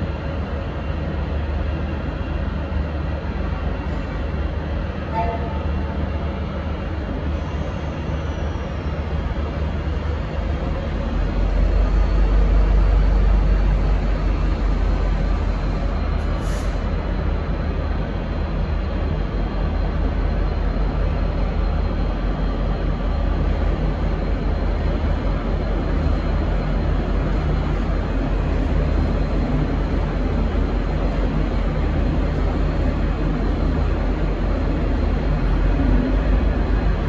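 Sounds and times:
diesel locomotive rumbling: 0.0s - 37.0s.

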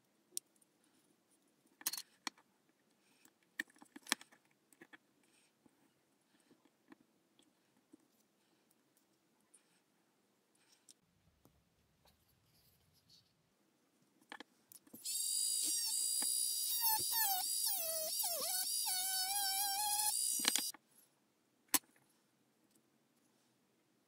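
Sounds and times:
mini drill whining: 15.0s - 20.7s.

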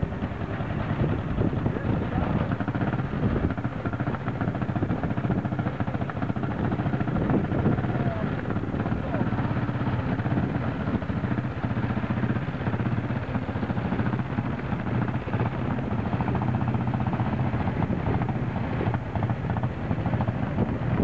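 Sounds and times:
motorcycle engine idling: 0.0s - 21.0s.

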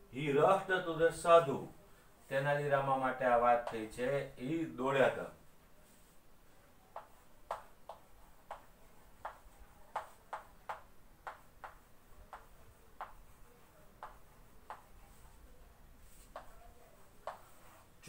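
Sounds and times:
chalk writing on a blackboard: 6.9s - 18.0s.

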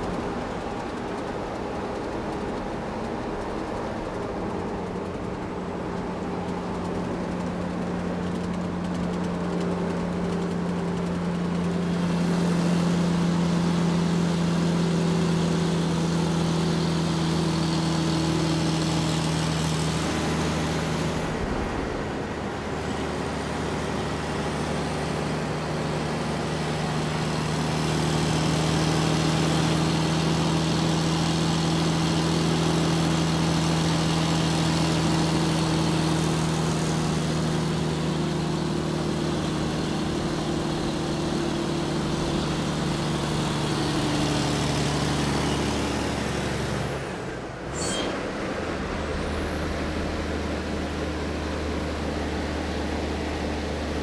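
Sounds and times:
machine-like hum: 39.4s - 54.0s.

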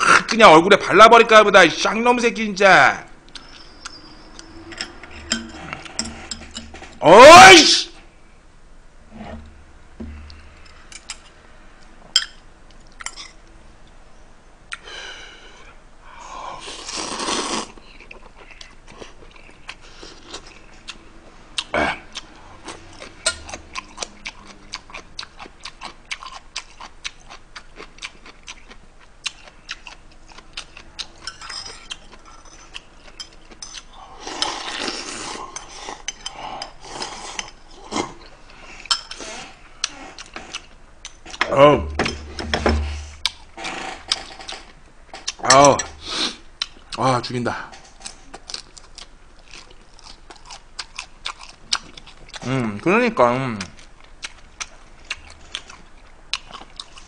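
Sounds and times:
slurping noodles: 16.6s - 17.8s, 43.6s - 44.5s
chewing and mouth sounds: 21.6s - 41.5s, 48.0s - 52.6s, 53.6s - 57.0s.

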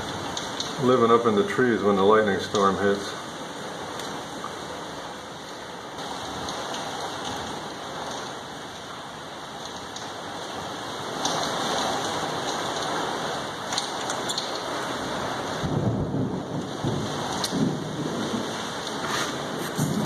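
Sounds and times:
hailstones ticking: 0.0s - 20.0s
heavy rain on a window: 0.0s - 20.0s.

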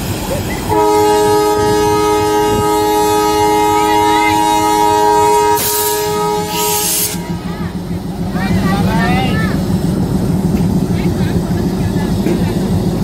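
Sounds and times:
train air horn blast: 0.7s - 7.7s.

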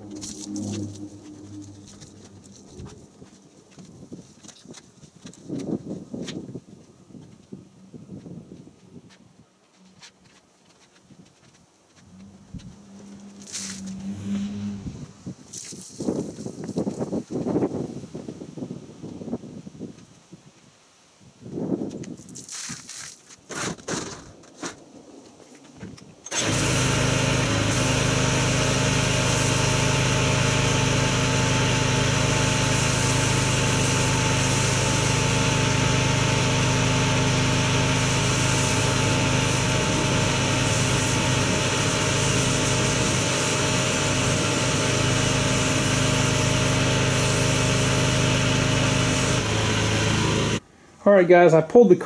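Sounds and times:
pressure washer running: 0.0s - 3.3s, 12.2s - 15.0s, 26.3s - 50.6s
water spraying on car: 12.9s - 14.7s, 26.3s - 50.6s.

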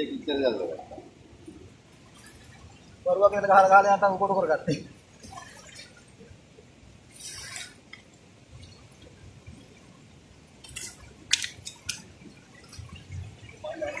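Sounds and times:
water splash: 5.1s - 6.3s
fish slapping on wet rock: 10.6s - 12.1s.

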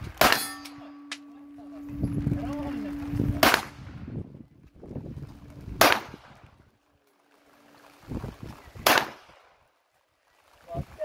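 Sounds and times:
pistol shots: 8.8s - 9.3s.

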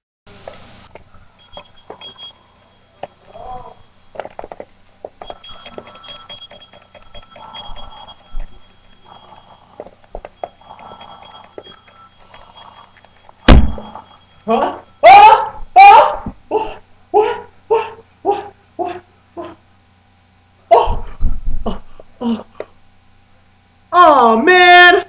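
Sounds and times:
alarm clock beeping: 1.2s - 4.6s, 5.2s - 15.0s.

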